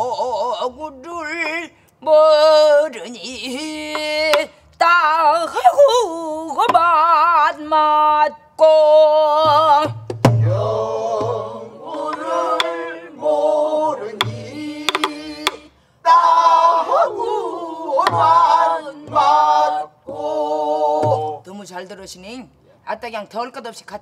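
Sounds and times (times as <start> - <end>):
group singing together: 8.7 - 21.5
low thumps on drumhead: 9.4 - 12.8, 14.2 - 15.6, 18.0 - 19.5, 21.0 - 21.4
stick clicks on drum body: 12.0 - 12.8, 14.2 - 15.6.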